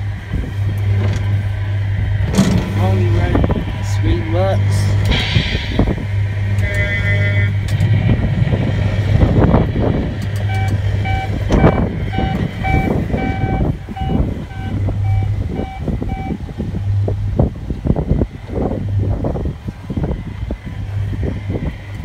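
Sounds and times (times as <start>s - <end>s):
electronic engine rumbling hum: 0.0s - 22.0s
horn-like tone: 6.3s - 8.1s, 10.4s - 16.4s
reversing beeps: 10.5s - 16.4s.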